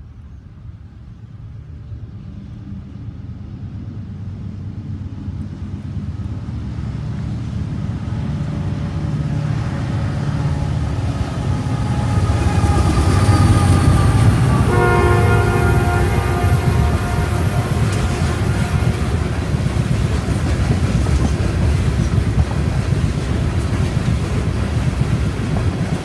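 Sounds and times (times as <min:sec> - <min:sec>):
diesel locomotive engine rumble: 0:00.0 - 0:26.0
high whine: 0:09.4 - 0:20.5.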